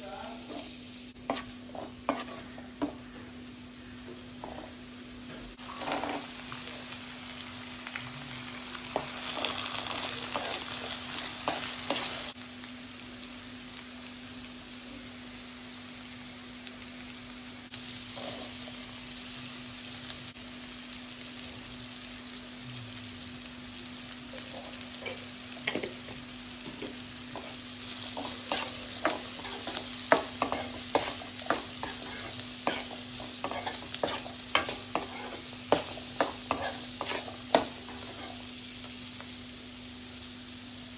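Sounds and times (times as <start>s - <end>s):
vegetables sizzling in oil: 0.0s - 40.9s
steel spoon scraping a pan: 1.3s - 2.6s, 27.4s - 38.5s.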